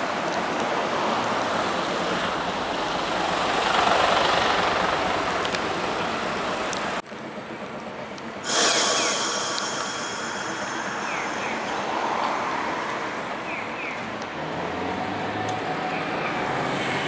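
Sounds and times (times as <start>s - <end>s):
tram wheels rumbling on rails: 0.0s - 17.0s
loud bright hiss: 8.4s - 13.8s.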